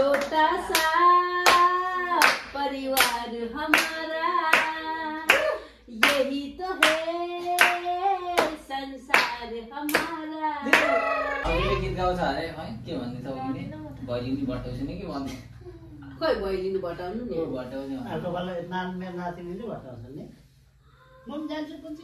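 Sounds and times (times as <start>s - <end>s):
group clapping a steady beat: 0.0s - 11.1s.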